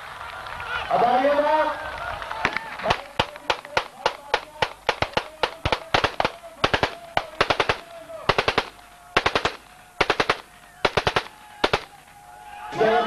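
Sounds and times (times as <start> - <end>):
rapid sharp cracks: 2.4 - 12.2.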